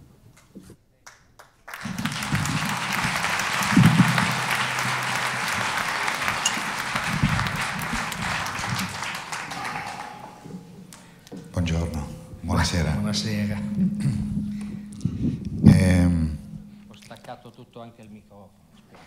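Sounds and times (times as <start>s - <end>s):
audience applauding: 1.4s - 11.2s.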